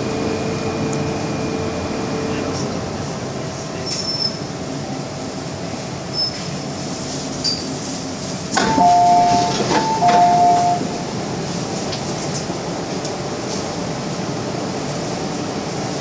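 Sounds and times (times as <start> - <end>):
train running hum: 0.0 - 16.0
train door clunk: 8.5 - 11.1
two-note door chime: 8.6 - 10.9.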